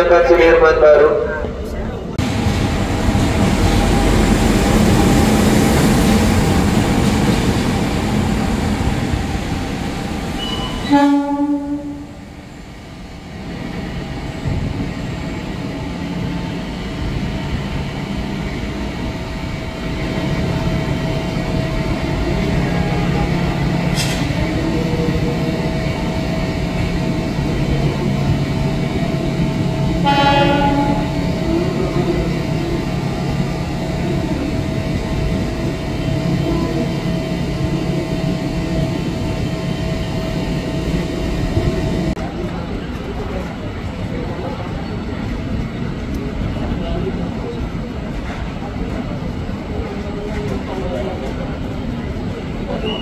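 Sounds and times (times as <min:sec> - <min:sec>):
diesel locomotive drone: 0:00.0 - 0:53.0
locomotive passing: 0:00.0 - 0:53.0
train horn blast: 0:10.4 - 0:12.2, 0:30.0 - 0:31.5.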